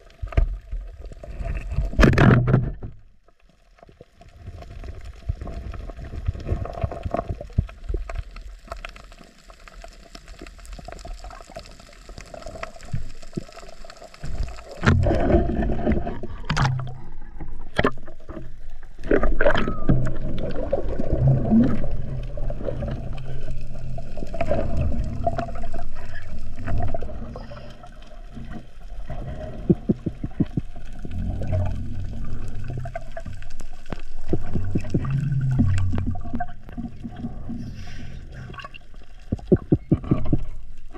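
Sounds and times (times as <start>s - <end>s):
water sloshing and gurgling: 0.0s - 40.9s
faint clicks underwater: 4.8s - 20.9s, 28.4s - 37.4s.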